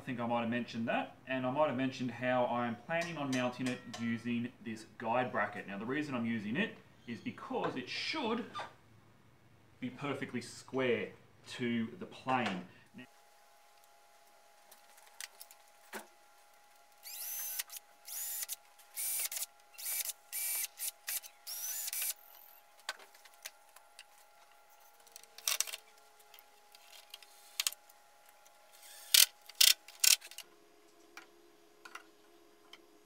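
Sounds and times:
cordless drill bursts: 17.0s - 22.5s, 28.8s - 30.2s.

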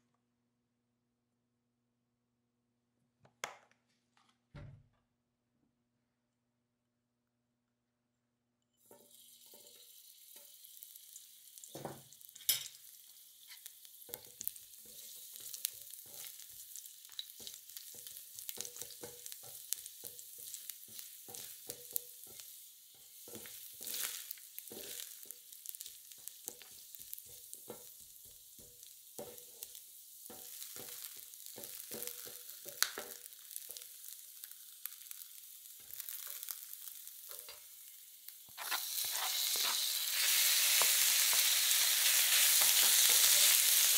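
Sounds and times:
garlic sizzling in oil: 8.8s - 43.9s
spatulas clicking and scraping: 38.5s - 41.4s.

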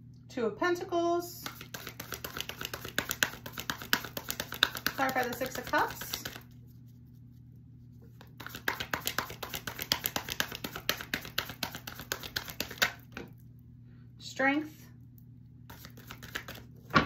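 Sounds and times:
cards being shuffled: 1.4s - 6.9s, 8.0s - 13.2s, 15.7s - 17.0s.

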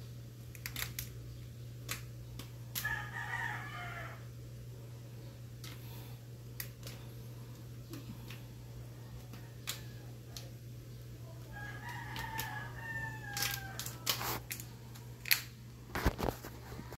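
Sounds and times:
rooster crowing: 2.8s - 4.3s, 11.4s - 14.4s.

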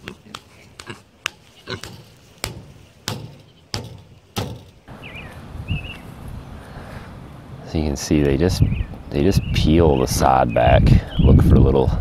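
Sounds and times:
hammer striking tent stake: 1.8s - 4.8s.

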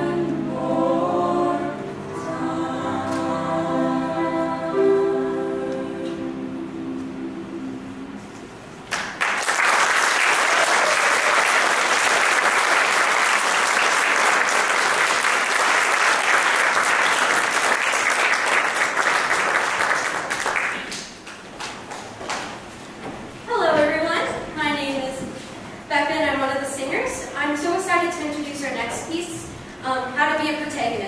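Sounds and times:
choir holding a chord: 0.0s - 8.8s
audience applauding: 8.9s - 22.5s.

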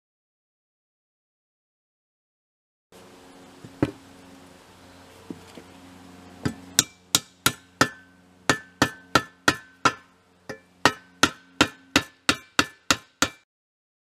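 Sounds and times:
hammer striking nail into wood: 6.4s - 13.4s.

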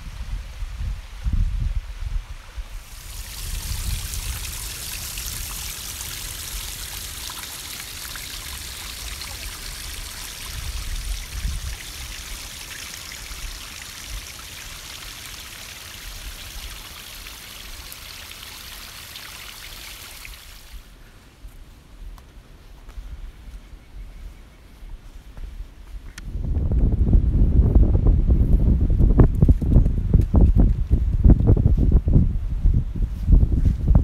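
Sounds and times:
low rumble on microphone: 0.0s - 7.2s, 24.0s - 34.0s
creek trickling over rocks: 2.8s - 20.9s.

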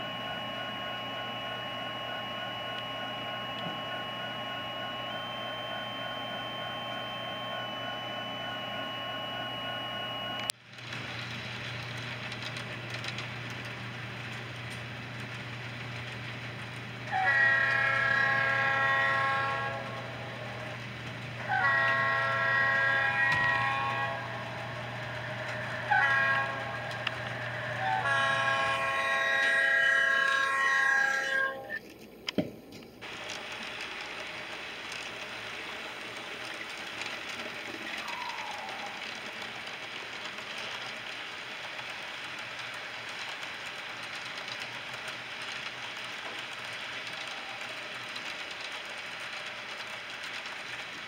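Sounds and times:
train running rumble: 10.7s - 31.6s
model train horn blasts: 17.1s - 20.7s, 21.4s - 31.8s
steady drone of tones: 18.0s - 31.8s.

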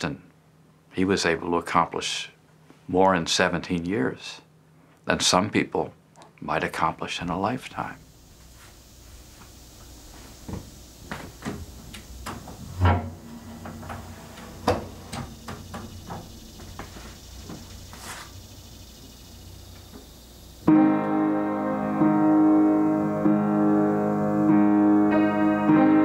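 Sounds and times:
piano chords: 11.6s - 16.7s, 19.0s - 26.0s
piano fallboard knocks and clicks: 12.2s - 16.3s.

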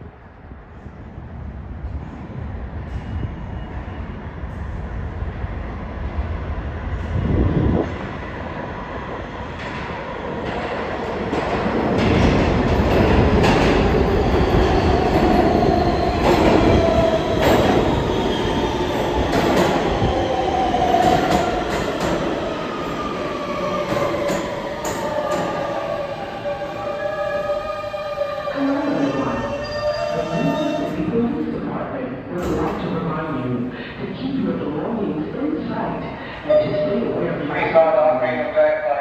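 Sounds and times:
train wheels rumbling and clicking: 9.5s - 22.4s.

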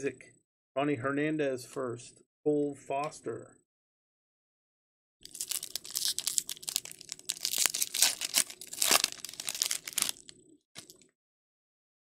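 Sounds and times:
foil wrapper tearing and crinkling: 5.2s - 11.0s.

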